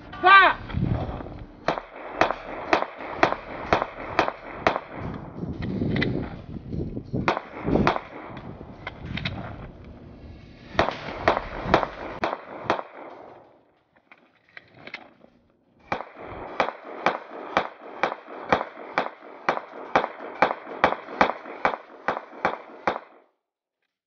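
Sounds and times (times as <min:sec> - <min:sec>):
pistol shots: 0:01.6 - 0:06.4, 0:07.2 - 0:09.8, 0:10.6 - 0:13.7, 0:15.8 - 0:23.3
magazine being reloaded: 0:14.0 - 0:15.3.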